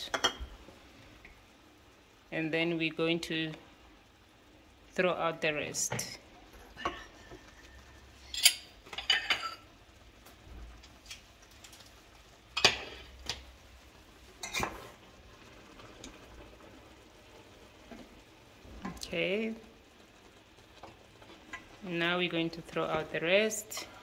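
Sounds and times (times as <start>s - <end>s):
utensils clinking against a metal pot: 8.2s - 9.6s.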